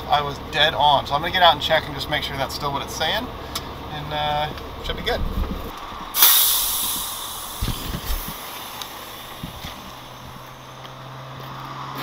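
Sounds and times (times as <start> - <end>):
air brake hiss: 6.1 - 10.2.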